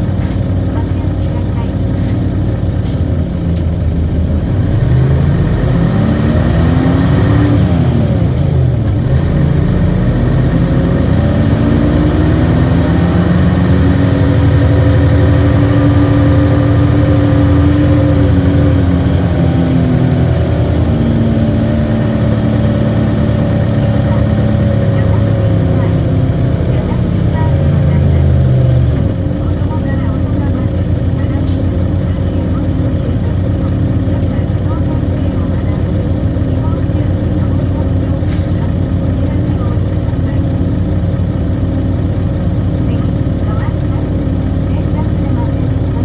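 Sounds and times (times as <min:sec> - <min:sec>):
bus diesel engine accelerating: 0:00.0 - 0:46.0.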